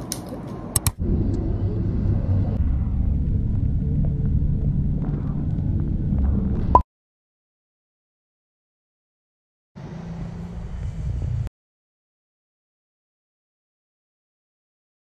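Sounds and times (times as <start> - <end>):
sharp clicks: 0.1 - 1.0
car road and engine rumble: 9.8 - 11.5.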